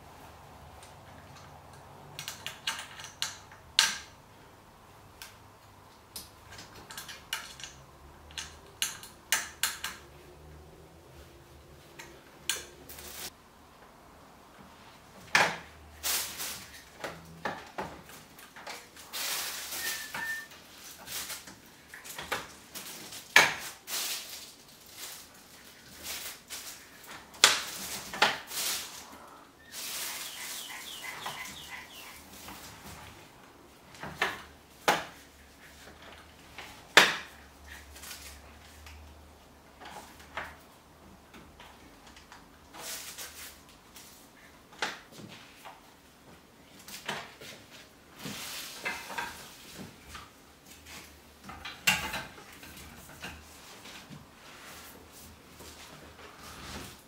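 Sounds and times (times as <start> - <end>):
plastic wrap rustling: 15.9 - 17.0, 18.1 - 33.0.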